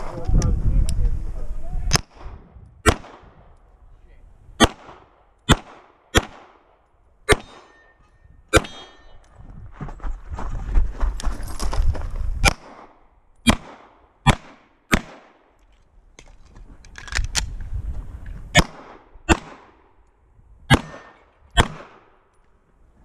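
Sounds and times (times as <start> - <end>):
pistol shots: 1.9 - 3.4, 4.6 - 9.1, 12.4 - 15.5, 18.5 - 19.8, 20.7 - 22.2.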